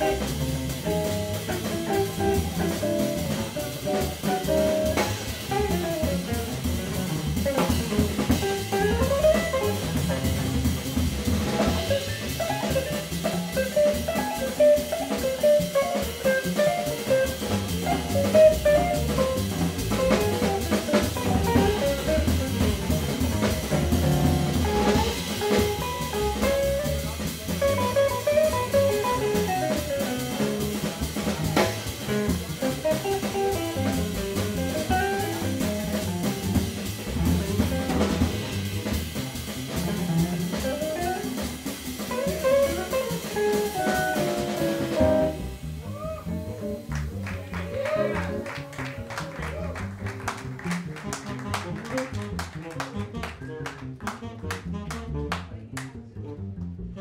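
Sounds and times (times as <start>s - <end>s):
swinging drum kit: 0.0s - 55.8s
guitar: 0.0s - 56.0s
fast jazz: 0.0s - 57.0s
walking double bass: 0.0s - 57.0s
tenor saxophone: 51.0s - 55.5s.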